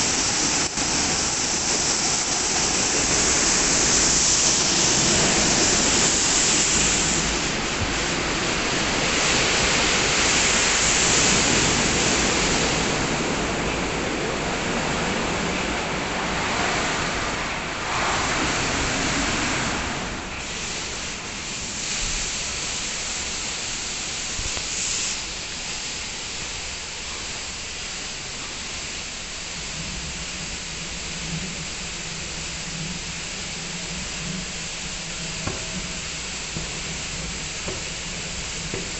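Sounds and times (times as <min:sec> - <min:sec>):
car wash spraying water: 0:00.0 - 0:38.9.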